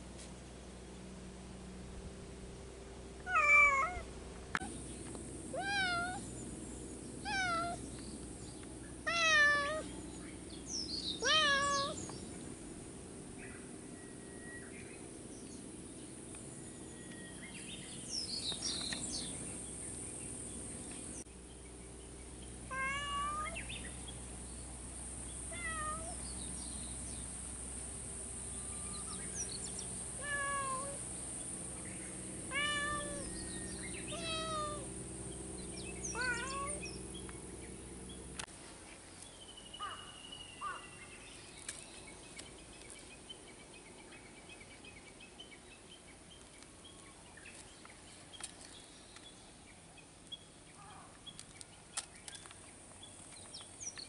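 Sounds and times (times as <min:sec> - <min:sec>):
cats meowing: 0:03.3 - 0:04.0, 0:05.6 - 0:06.2, 0:07.2 - 0:07.8, 0:09.1 - 0:09.9, 0:11.2 - 0:12.0, 0:22.7 - 0:23.6, 0:25.5 - 0:26.2, 0:30.2 - 0:31.0, 0:32.5 - 0:33.3, 0:34.1 - 0:34.8, 0:36.1 - 0:36.8.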